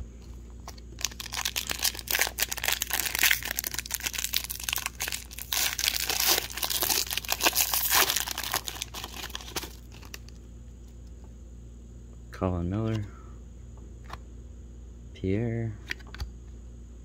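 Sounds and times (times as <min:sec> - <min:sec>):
wrapper tearing and crinkling: 0:01.0 - 0:10.3.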